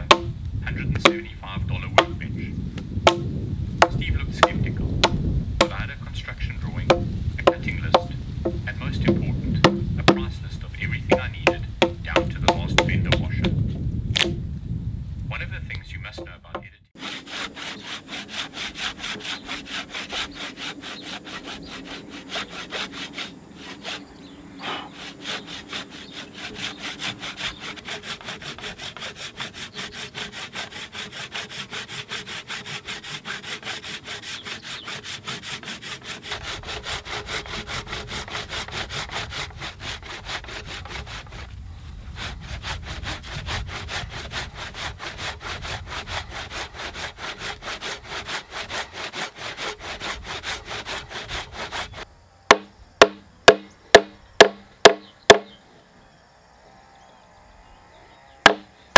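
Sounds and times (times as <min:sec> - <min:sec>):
hand saw cutting wood: 0:00.0 - 0:00.3, 0:02.0 - 0:02.2, 0:03.8 - 0:05.8, 0:06.9 - 0:10.3, 0:11.1 - 0:13.6, 0:17.0 - 0:41.5, 0:42.1 - 0:55.4.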